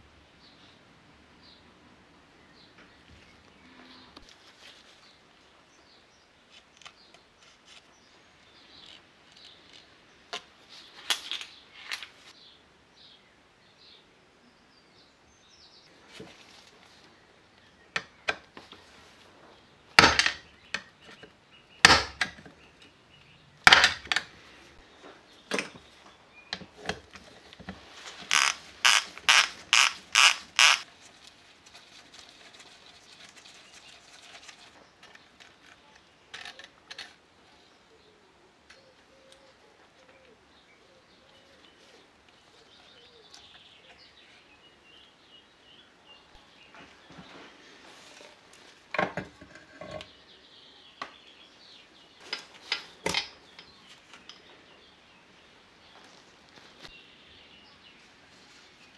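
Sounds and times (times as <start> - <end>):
wrench clicking on bolts: 28.3 - 30.8.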